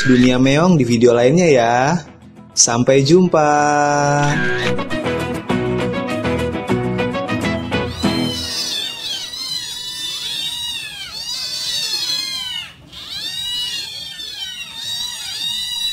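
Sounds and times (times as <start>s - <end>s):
kittens meowing: 0.0s - 0.6s, 4.2s - 5.0s, 7.9s - 15.9s
music: 0.4s - 9.5s.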